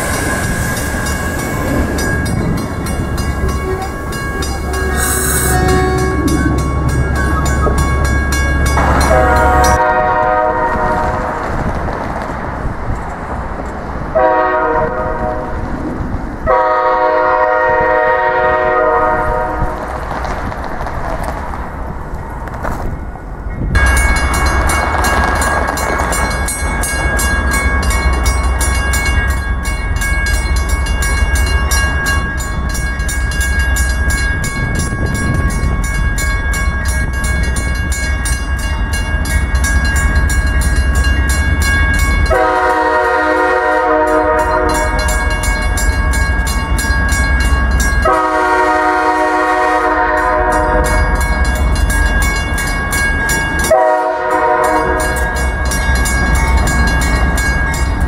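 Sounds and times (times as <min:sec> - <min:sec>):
crossing bell ringing: 0:00.0 - 0:11.2, 0:23.6 - 0:58.0
diesel train rumble: 0:00.0 - 0:58.0
train air horn blasts: 0:03.4 - 0:06.6, 0:08.8 - 0:11.4, 0:14.2 - 0:15.6, 0:16.4 - 0:19.8, 0:42.3 - 0:45.2, 0:48.0 - 0:51.1, 0:53.7 - 0:55.4.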